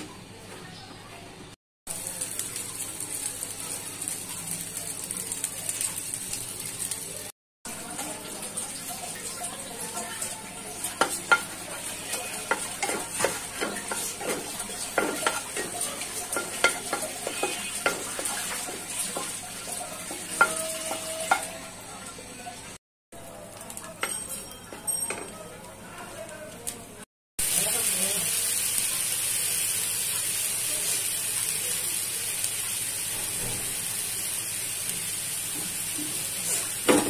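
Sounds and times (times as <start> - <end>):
chillies sizzling in oil: 1.9 - 37.0
spatula stirring thick dal: 11.0 - 21.5
spatula scraping on pan: 11.0 - 21.6.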